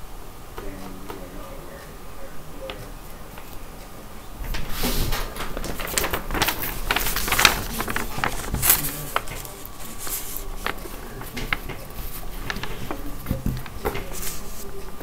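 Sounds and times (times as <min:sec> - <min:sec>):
paper rustling and crinkling: 0:04.5 - 0:15.0.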